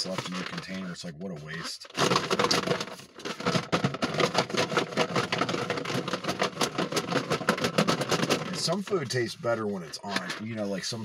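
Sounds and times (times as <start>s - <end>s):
food rattling in plastic container: 1.9s - 8.7s.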